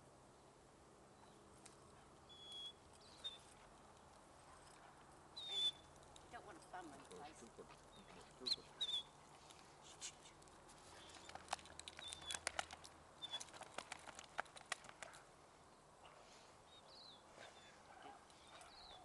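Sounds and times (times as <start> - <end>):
bird chirps: 2.3 - 3.5, 5.4 - 5.9, 7.9 - 9.2.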